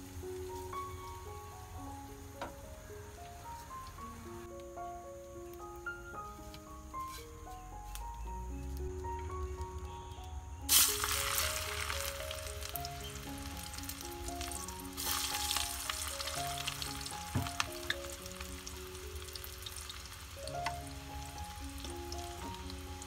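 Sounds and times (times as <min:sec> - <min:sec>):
wood fire crackling: 0:00.0 - 0:23.0
garlic sizzling in hot oil: 0:10.7 - 0:23.0.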